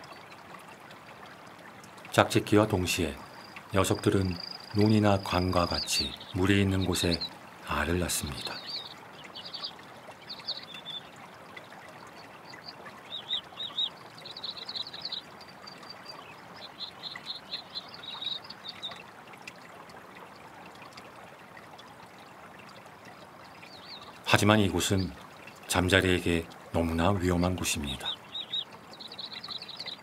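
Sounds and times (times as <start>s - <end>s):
faint hiss of water: 0.0s - 30.0s
high chirping calls: 2.7s - 11.2s, 12.0s - 19.0s, 23.5s - 26.2s, 26.8s - 30.0s.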